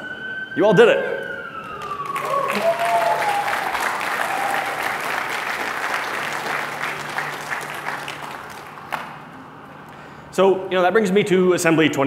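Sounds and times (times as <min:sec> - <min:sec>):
audience applauding: 0:01.6 - 0:09.3.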